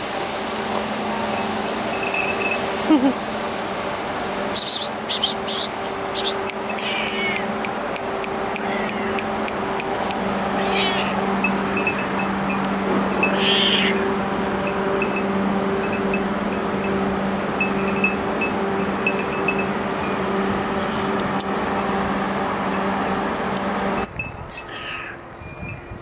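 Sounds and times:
steady hum and hiss: 0.0 - 26.0
cat meowing: 6.7 - 7.5, 8.6 - 9.2, 10.6 - 11.2, 13.3 - 14.0, 24.7 - 25.2.

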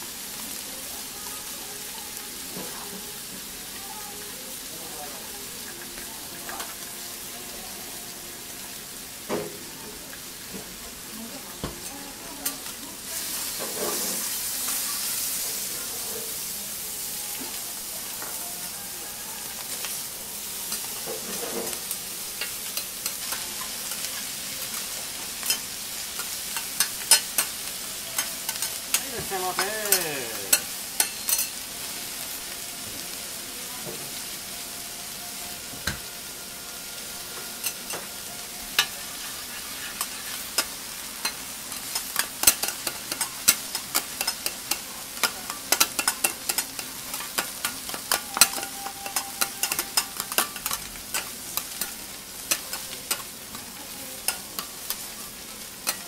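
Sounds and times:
food sizzling on a griddle: 0.0 - 56.0
metal spatulas scraping: 38.7 - 53.3.

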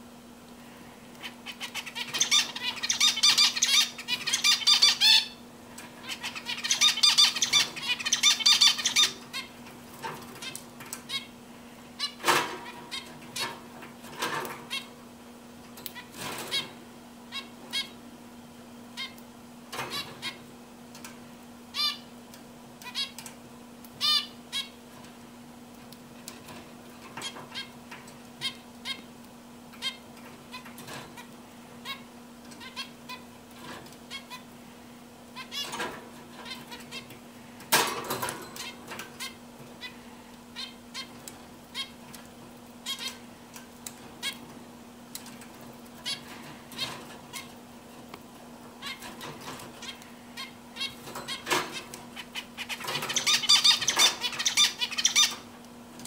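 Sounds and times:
finches calling: 1.2 - 5.4, 6.0 - 9.5, 52.2 - 55.4.

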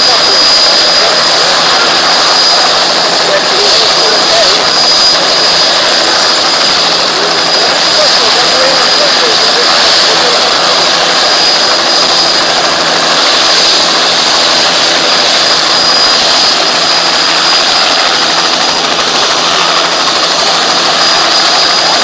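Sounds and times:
helicopter engine and rotor rush: 0.0 - 22.0
helicopter turbine whine: 0.0 - 22.0.

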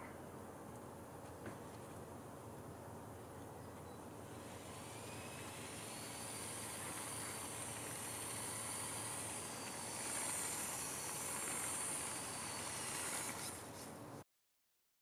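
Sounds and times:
electric motor whine: 4.2 - 14.0
hiss: 4.4 - 13.9.

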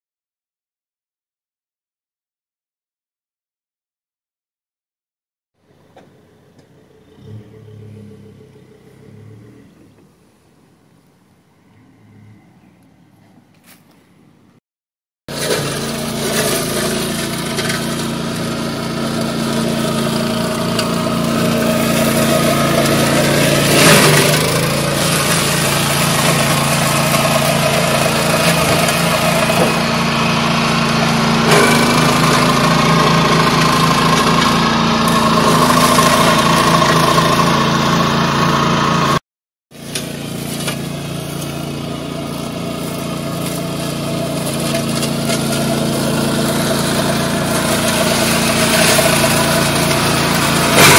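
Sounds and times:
walk-behind tractor mower running: 15.3 - 50.9.

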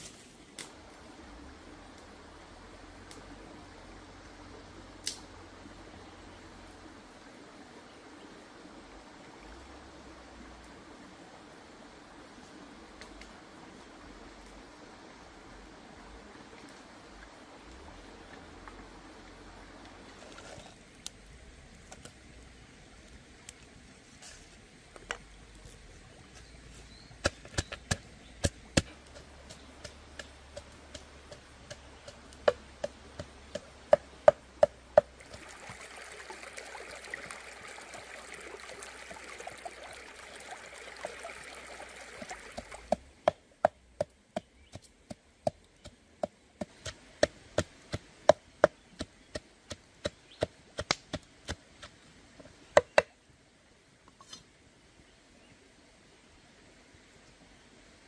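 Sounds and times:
steady hiss: 0.0 - 45.4.

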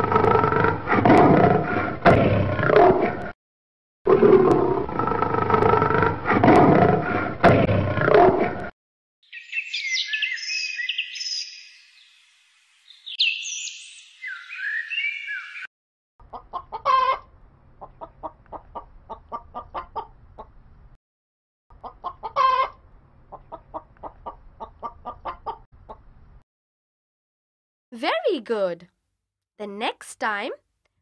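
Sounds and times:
hen clucking: 16.2 - 20.6, 21.7 - 26.2.

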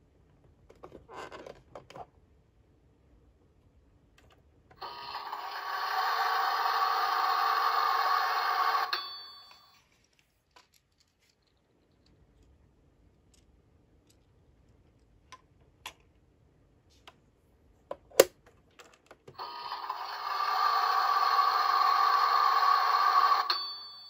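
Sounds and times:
toy microwave electronic tone: 4.8 - 9.8, 19.4 - 24.0.

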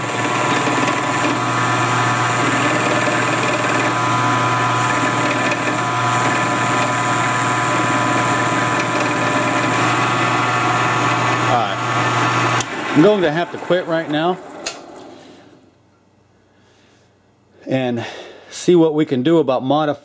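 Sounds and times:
milling machine cutting metal: 0.0 - 15.3.

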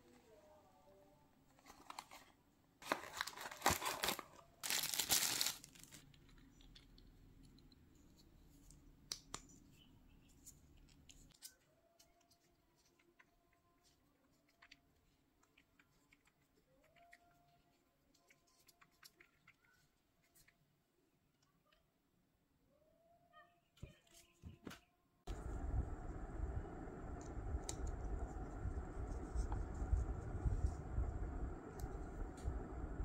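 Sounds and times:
packaging tearing and crinkling: 2.8 - 6.2.

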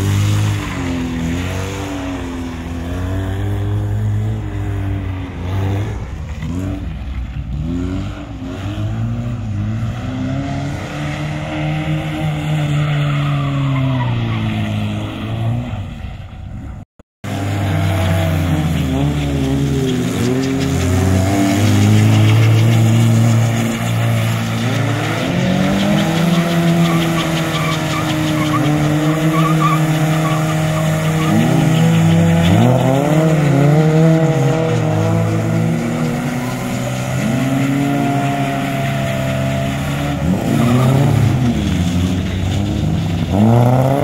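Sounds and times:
car sliding on loose dirt: 0.0 - 44.0
car engine revving hard: 17.2 - 44.0.

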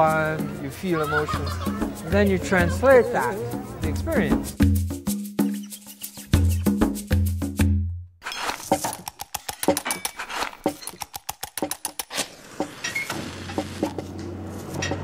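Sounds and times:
sharp clicks and taps: 8.7 - 12.2.

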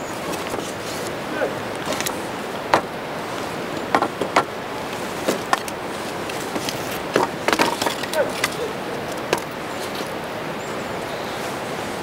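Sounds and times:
steady rushing background noise: 0.0 - 12.0
wooden poles knocking together: 3.8 - 4.5, 5.2 - 10.0.

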